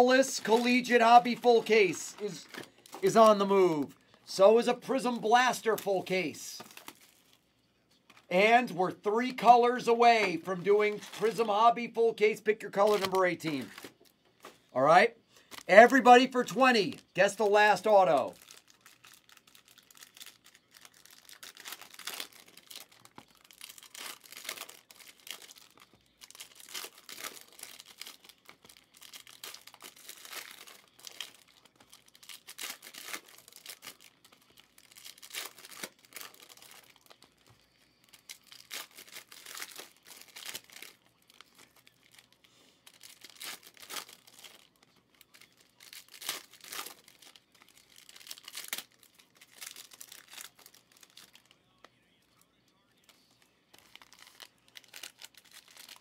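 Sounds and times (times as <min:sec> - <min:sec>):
cards being handled: 0:00.0 - 0:03.9, 0:12.7 - 0:14.7
card pack wrappers tearing and crinkling: 0:00.0 - 0:07.4, 0:08.1 - 0:51.9, 0:53.0 - 0:56.0.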